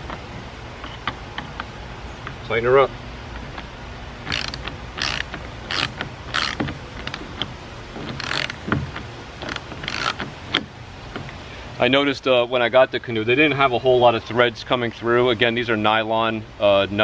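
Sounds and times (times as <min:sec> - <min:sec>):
socket ratchet clicking: 0:04.3 - 0:07.5, 0:08.1 - 0:10.6.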